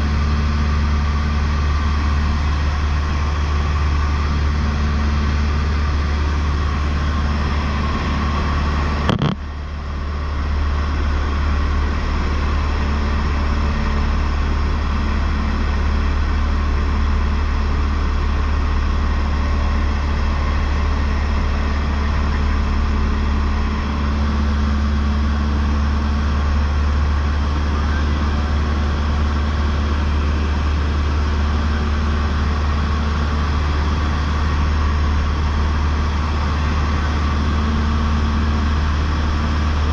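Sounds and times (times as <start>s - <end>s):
airplane engine drone: 0.0s - 39.9s
sharp click: 9.1s - 9.4s.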